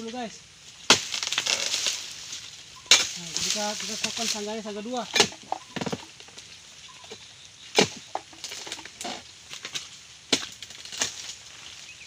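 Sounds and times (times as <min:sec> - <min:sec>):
chisel chopping strikes: 0:05.1 - 0:06.1.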